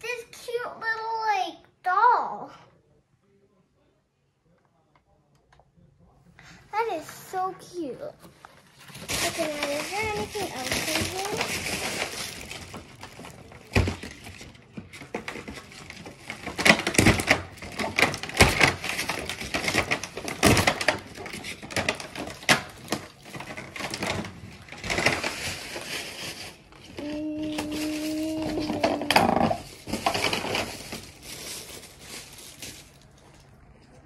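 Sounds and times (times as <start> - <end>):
toy packaging crinkling: 6.8 - 33.6.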